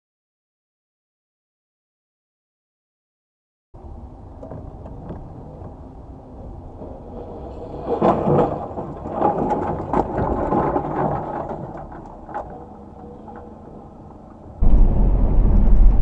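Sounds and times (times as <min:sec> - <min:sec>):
low road rumble: 0:03.8 - 0:16.0
vehicle crash with crunching clatter: 0:06.7 - 0:13.5, 0:14.6 - 0:16.0.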